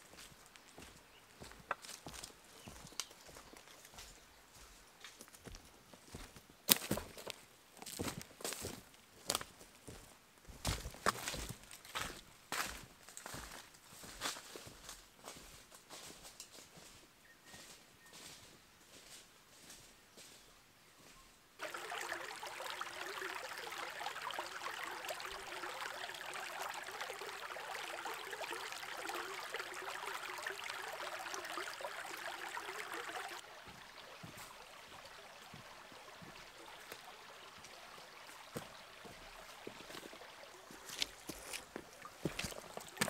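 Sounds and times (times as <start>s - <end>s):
creek babbling over stones: 0.0s - 4.6s, 21.6s - 43.0s.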